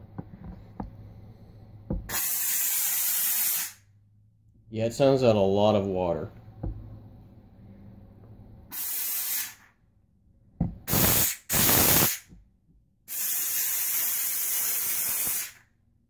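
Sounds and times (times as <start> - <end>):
steam cleaner blasting steam: 2.1 - 3.8, 8.7 - 9.7, 10.9 - 12.2, 13.1 - 15.6.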